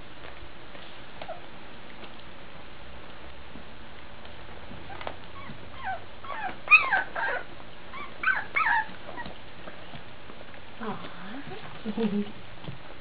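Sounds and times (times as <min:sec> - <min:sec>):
puppies whimpering: 0:04.9 - 0:09.4.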